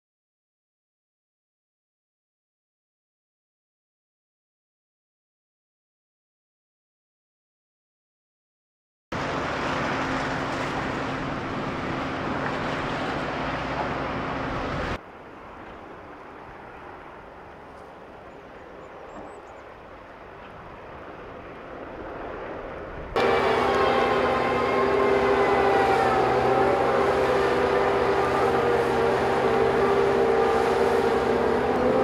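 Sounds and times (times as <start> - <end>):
engine whine: 9.2 - 32.0
diesel engine running: 23.2 - 32.0.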